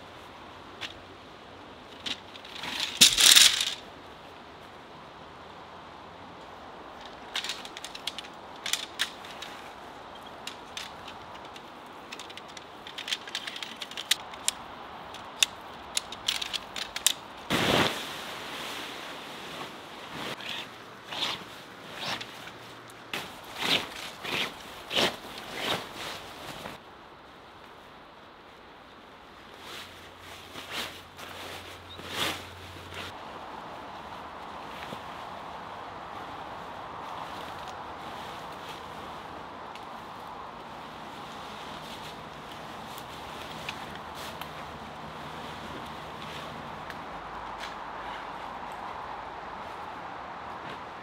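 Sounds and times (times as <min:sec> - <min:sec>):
tent poles clicking and rattling: 0:00.7 - 0:04.0, 0:06.6 - 0:18.0, 0:20.2 - 0:26.8, 0:33.8 - 0:51.0
tent fabric rustling: 0:01.9 - 0:03.8, 0:07.0 - 0:26.8, 0:29.5 - 0:51.0.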